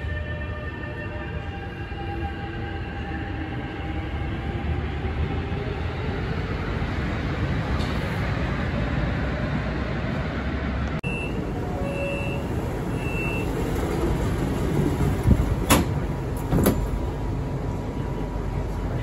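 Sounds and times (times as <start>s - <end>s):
train rumbling: 0.0s - 19.0s
door warning beeps: 11.0s - 13.5s.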